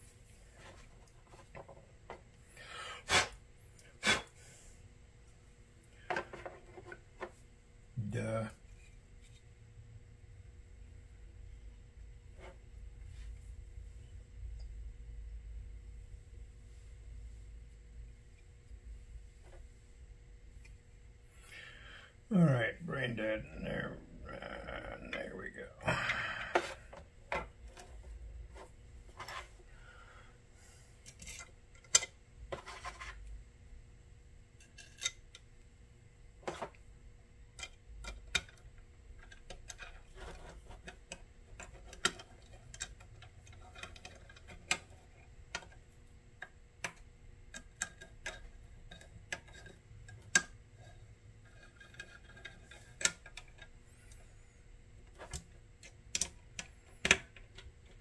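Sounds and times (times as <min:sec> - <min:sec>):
small metal parts and tools clicking: 0:31.0 - 0:32.2, 0:34.6 - 0:35.5, 0:37.5 - 0:54.3, 0:55.1 - 0:58.0.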